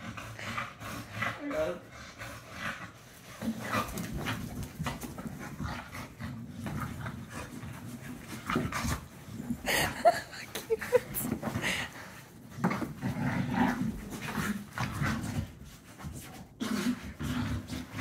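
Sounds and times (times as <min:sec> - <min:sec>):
dog scuffling on carpet: 0:03.1 - 0:09.6
dog grunting and whining: 0:08.4 - 0:12.0.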